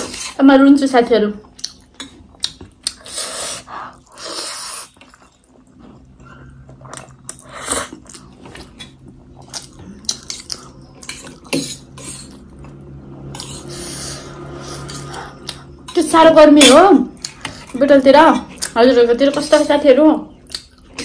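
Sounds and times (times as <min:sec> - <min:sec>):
slurping and chewing noodles: 0:01.6 - 0:16.0
cutlery scraping on metal plate: 0:15.9 - 0:18.6.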